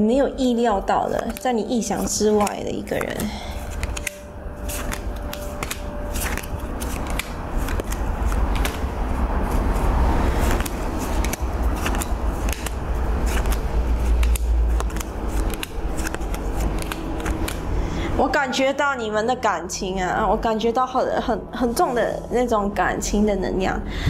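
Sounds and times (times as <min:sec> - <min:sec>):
cards clicking and rustling: 0:01.0 - 0:17.8.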